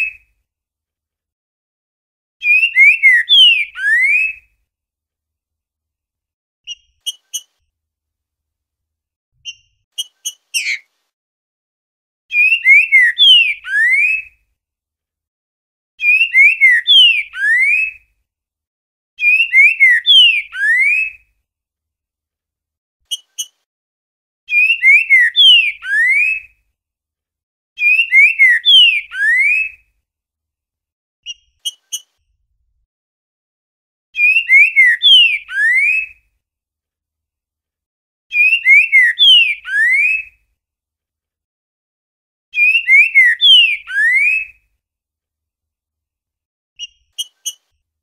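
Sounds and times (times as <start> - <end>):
bird singing whistled phrases: 2.4 - 4.5, 12.3 - 14.3, 16.0 - 18.0, 19.2 - 21.2, 24.5 - 26.5, 27.8 - 29.8, 34.2 - 36.2, 38.3 - 40.3, 42.6 - 44.6.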